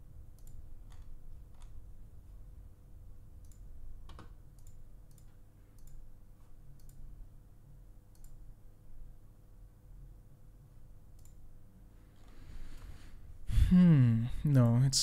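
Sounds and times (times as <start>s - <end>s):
faint steady hum: 0.0s - 15.0s
computer mouse clicking: 0.3s - 1.8s, 3.4s - 6.1s, 6.7s - 7.0s, 8.1s - 8.4s, 11.1s - 11.4s.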